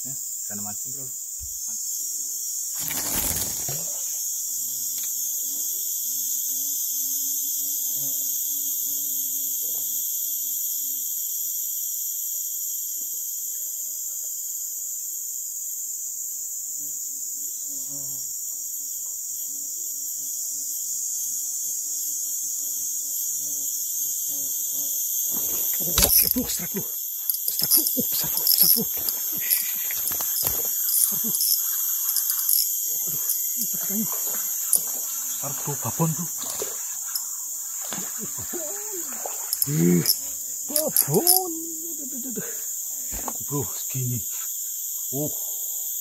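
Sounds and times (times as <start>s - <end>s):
high-pitched insect drone: 0.0s - 46.0s.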